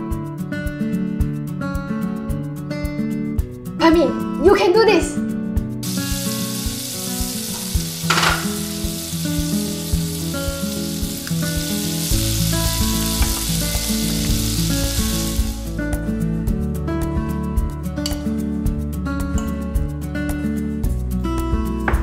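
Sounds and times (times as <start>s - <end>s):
food sizzling in a wok: 5.8s - 15.9s.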